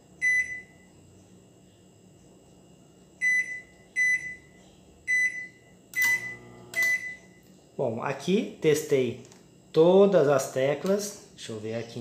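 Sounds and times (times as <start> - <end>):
microwave keypad beeps: 0.2 - 0.9, 3.2 - 7.4.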